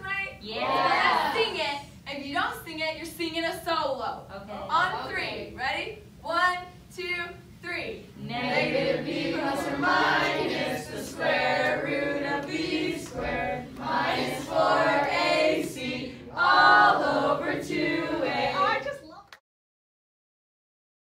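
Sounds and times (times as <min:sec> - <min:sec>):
group of voices singing: 0:08.2 - 0:19.0.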